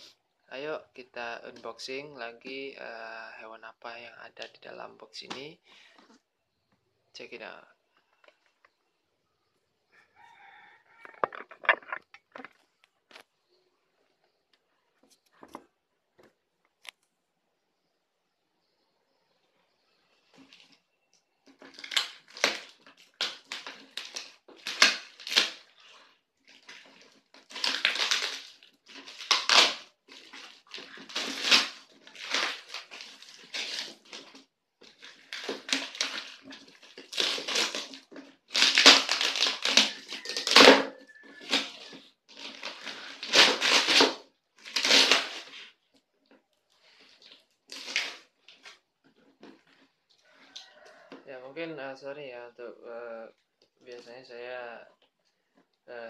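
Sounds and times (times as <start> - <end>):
packing tape ripping: 21.5 - 45.8, 46.8 - 49.9
newspaper crinkling and tearing: 21.5 - 50.9.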